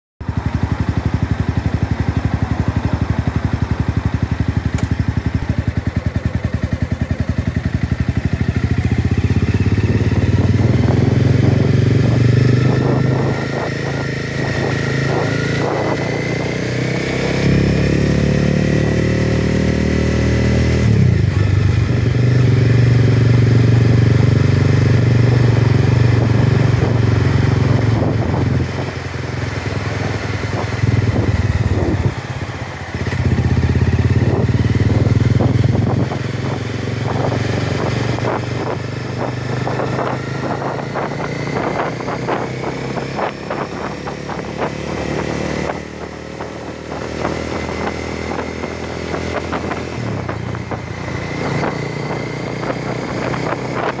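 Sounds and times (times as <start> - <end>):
motorcycle engine running: 0.2 - 54.0.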